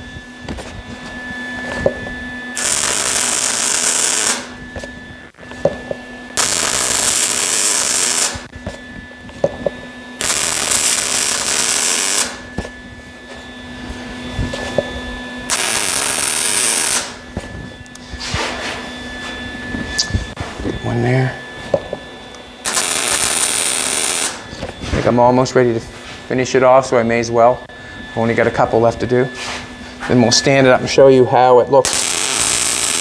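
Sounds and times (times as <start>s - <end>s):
welding arc crackling: 2.6s - 4.6s, 6.4s - 8.5s, 10.2s - 12.5s, 15.5s - 17.2s, 22.6s - 24.4s, 31.8s - 33.0s.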